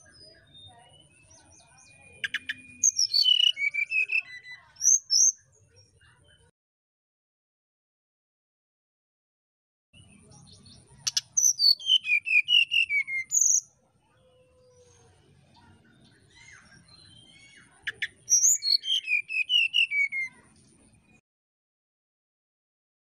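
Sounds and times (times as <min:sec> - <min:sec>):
bird whistling song: 0:00.0 - 0:05.4, 0:10.0 - 0:13.8, 0:16.2 - 0:20.5.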